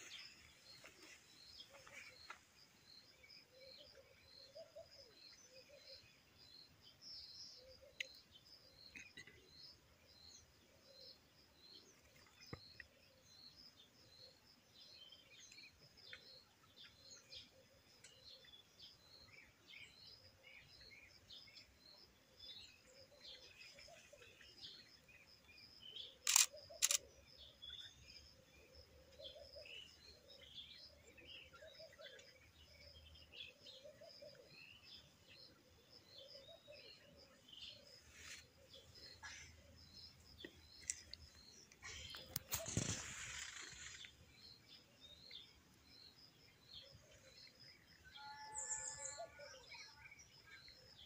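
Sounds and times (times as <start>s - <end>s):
small birds chirping faintly: 0.0s - 51.0s
camera shutter clicks: 26.2s - 27.0s.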